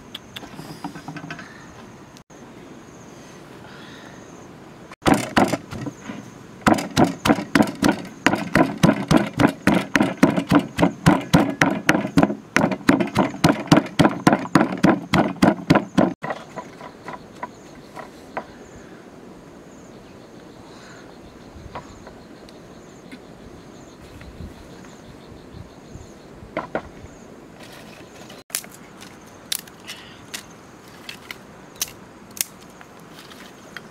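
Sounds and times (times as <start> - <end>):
pestle pounding in stone mortar: 5.0 - 6.0, 6.6 - 17.3.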